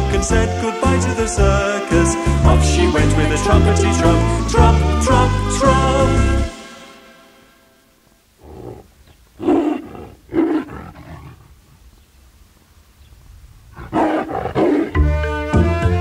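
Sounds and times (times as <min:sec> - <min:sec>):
tiger roaring: 0:08.4 - 0:11.8, 0:13.7 - 0:15.1.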